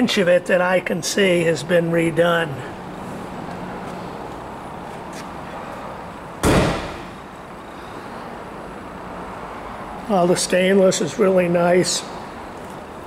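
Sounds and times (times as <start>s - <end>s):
sharp thump: 6.4s - 7.2s.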